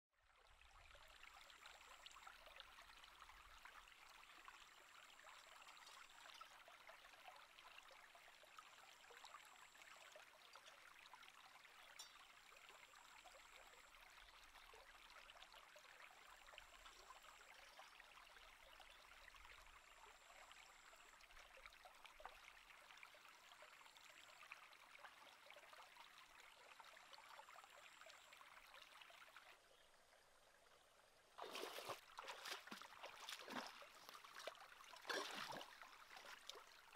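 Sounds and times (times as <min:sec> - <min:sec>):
stream flowing over stones: 0:00.2 - 0:36.9.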